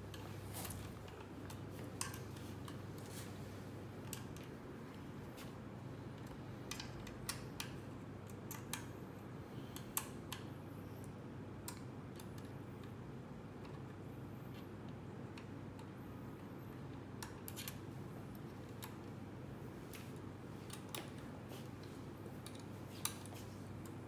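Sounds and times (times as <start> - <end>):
metal parts clicking and tapping: 0.0 - 2.8, 6.2 - 8.9
steady low hum: 0.0 - 24.0.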